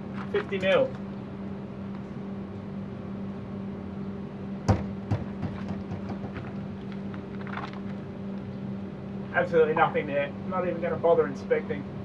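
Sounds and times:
steady hum: 0.0 - 12.0
sledgehammer knocking wall: 4.7 - 6.6.

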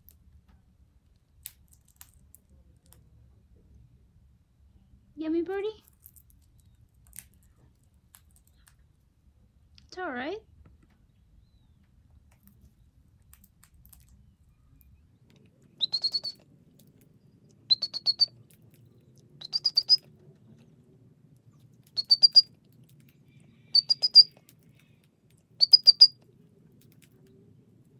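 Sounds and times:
parrot high chirps: 15.8 - 16.4, 17.7 - 18.4, 19.4 - 20.1, 22.0 - 22.5, 23.6 - 24.4, 25.6 - 26.2.

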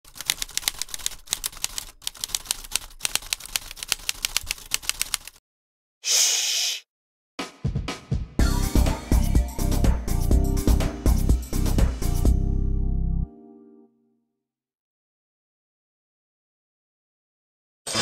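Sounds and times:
typewriter key clicks: 0.1 - 5.4
short burst of hiss: 6.0 - 6.9
music with strong bass line: 8.4 - 13.2.

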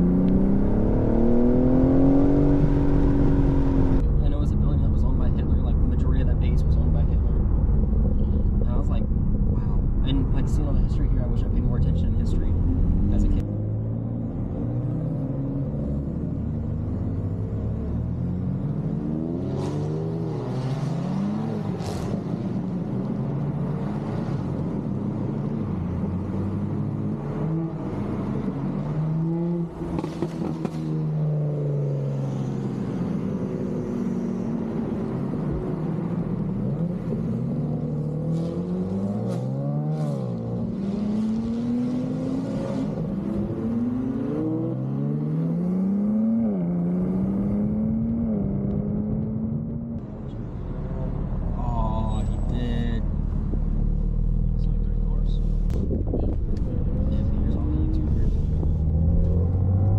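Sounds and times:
car engine revving: 0.0 - 22.6, 33.0 - 59.9.

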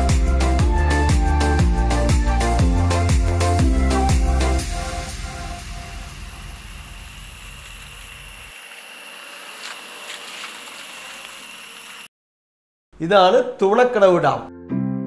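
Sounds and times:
forest insects chorus: 5.7 - 12.1.

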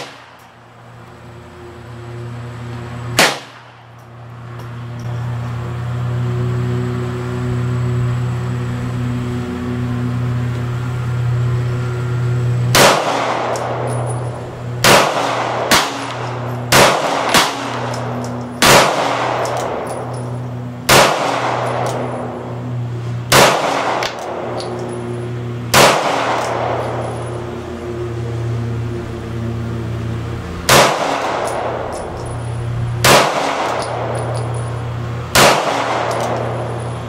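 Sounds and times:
pistol shots with ringing echo: 0.0 - 0.6, 3.1 - 3.9, 12.7 - 22.5, 23.3 - 27.3, 30.6 - 37.0.

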